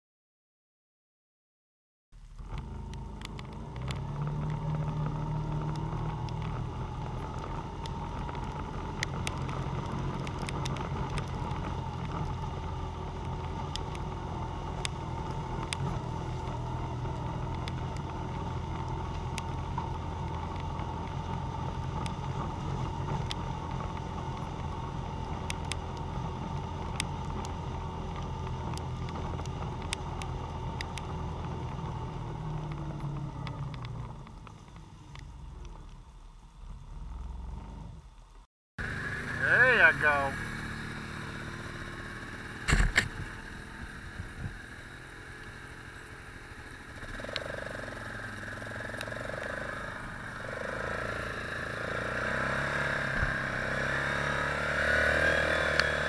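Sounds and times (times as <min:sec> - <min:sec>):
off-road vehicle engine under load: 0:02.2 - 0:56.0
sharp clicks and knocks: 0:42.7 - 0:43.2.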